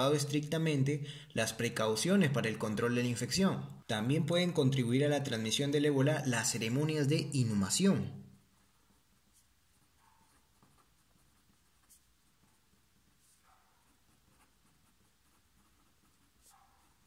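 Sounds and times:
pen scratching on paper: 8.5 - 17.0.

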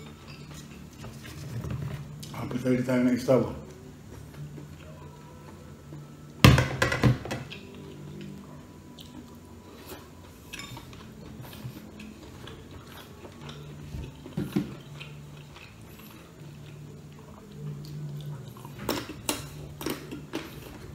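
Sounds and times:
skewers and dishes clinking: 10.0 - 15.8.

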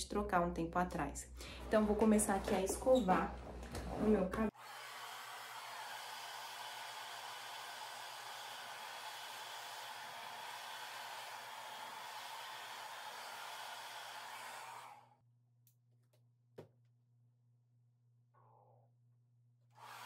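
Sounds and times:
hair dryer running: 4.5 - 15.1, 19.8 - 20.0.

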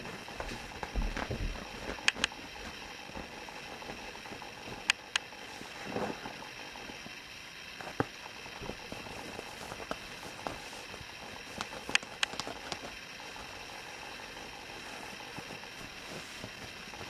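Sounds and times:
kitten rustling on fleece mat: 0.0 - 4.8, 8.6 - 13.5, 14.5 - 17.0
sharp little clicks: 2.0 - 2.4.

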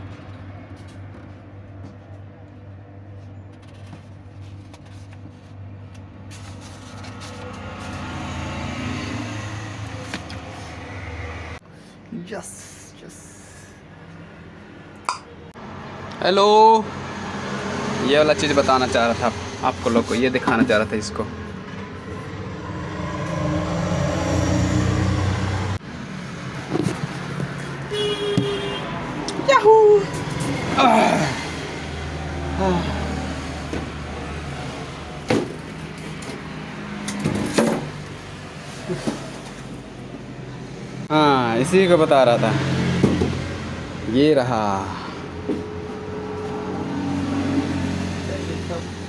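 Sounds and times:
low motor hum: 0.0 - 16.2
low engine-like hum: 0.0 - 49.0
paper pages turning: 3.5 - 8.1.

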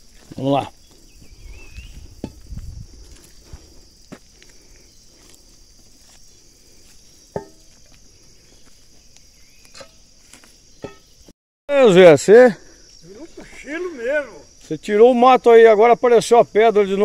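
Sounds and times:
footsteps on grass: 0.0 - 11.3
insects chirring: 0.0 - 17.0.

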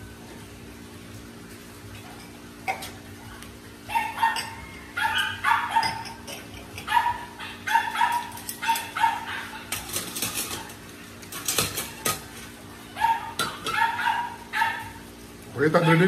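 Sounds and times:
dog barking: 3.9 - 6.1, 6.8 - 9.9, 13.0 - 15.0, 15.8 - 16.0
spoon clinking against dishes: 4.2 - 6.9.

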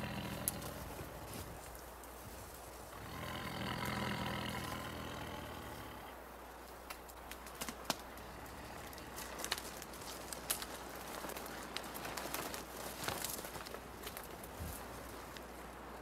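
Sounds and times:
tiger growling: 0.0 - 1.6, 2.9 - 6.2, 8.1 - 9.6.

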